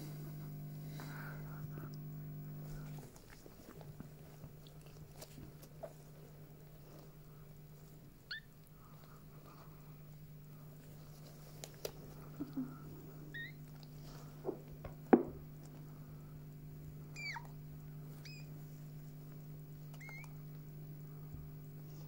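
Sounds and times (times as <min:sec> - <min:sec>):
steady low hum: 0:00.0 - 0:22.0
puppy squeaking: 0:13.3 - 0:13.6, 0:17.1 - 0:17.6, 0:18.2 - 0:18.5, 0:19.9 - 0:20.3.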